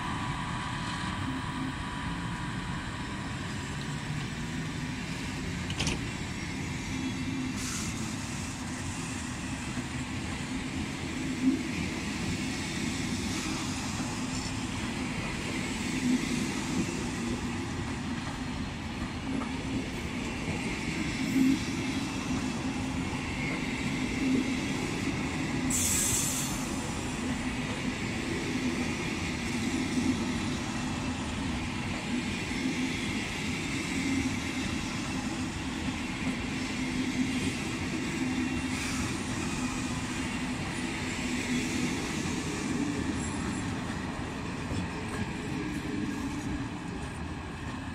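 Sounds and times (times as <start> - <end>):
train wheels rumbling on rails: 0.0 - 47.9
train knocks: 5.6 - 6.4.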